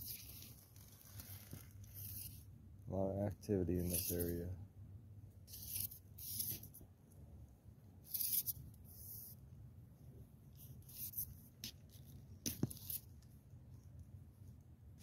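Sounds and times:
fishing rod handling rustles: 0.0s - 2.5s.

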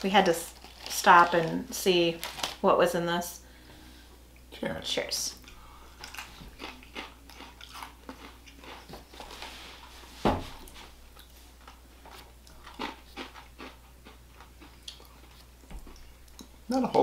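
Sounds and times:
crunching crisp breadsticks: 0.1s - 2.6s, 5.4s - 9.5s, 10.6s - 17.0s
thump: 10.2s - 10.5s.

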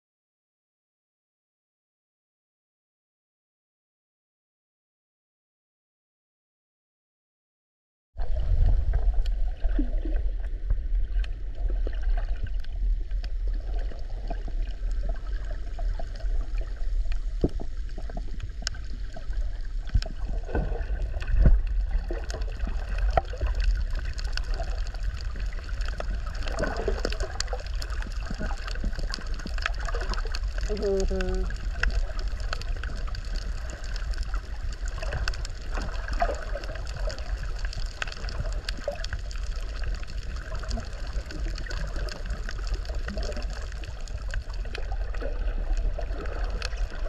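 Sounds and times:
muffled underwater rumble: 8.2s - 47.0s
sharp underwater clicks: 21.2s - 45.2s.

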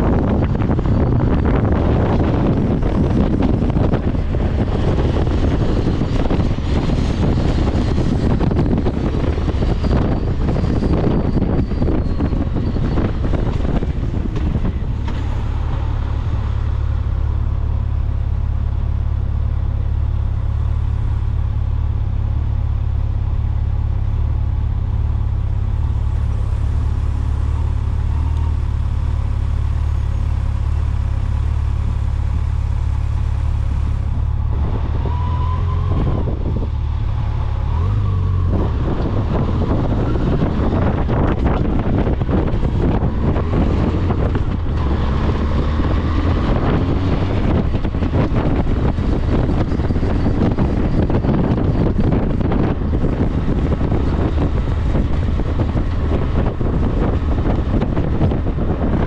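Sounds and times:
wind buffeting microphone: 0.0s - 18.2s, 30.4s - 59.0s
road and engine noise: 0.0s - 59.0s.

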